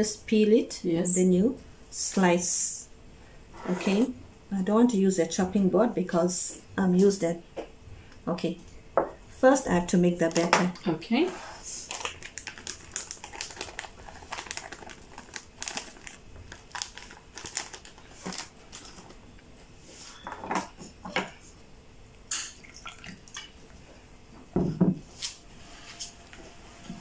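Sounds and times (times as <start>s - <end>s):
paper bag crinkling: 11.6s - 19.2s
dishes knocking on countertop: 24.5s - 25.0s.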